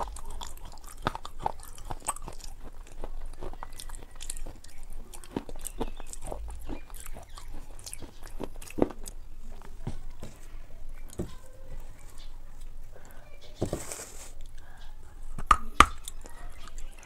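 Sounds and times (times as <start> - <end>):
wet mouth sounds: 0.0 - 9.2
crunchy chewing: 0.0 - 17.0.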